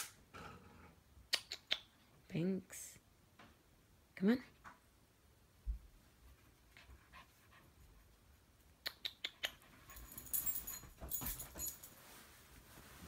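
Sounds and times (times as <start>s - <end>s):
dog scrambling on bedding: 10.0s - 13.0s.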